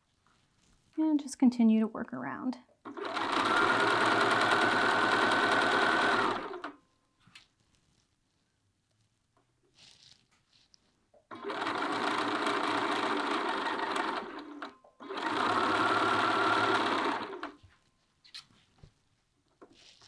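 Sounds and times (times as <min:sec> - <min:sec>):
faint fabric handling: 0:00.0 - 0:01.0, 0:06.8 - 0:11.2, 0:17.6 - 0:20.0
sewing machine stitching: 0:02.9 - 0:06.8, 0:11.3 - 0:17.6.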